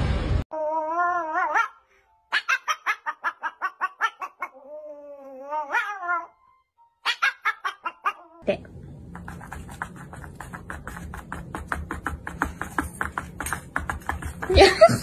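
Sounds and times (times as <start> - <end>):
dog yipping: 0.6 - 6.4, 7.0 - 8.4.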